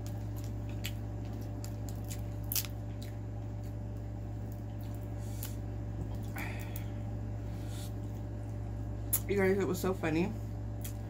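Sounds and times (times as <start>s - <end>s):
crab shell cracking: 0.0s - 3.8s.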